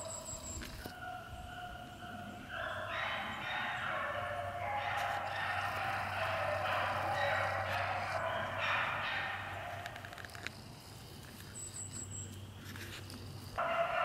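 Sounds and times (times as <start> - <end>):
dogs barking and baying: 0.0 - 10.6, 13.6 - 14.0.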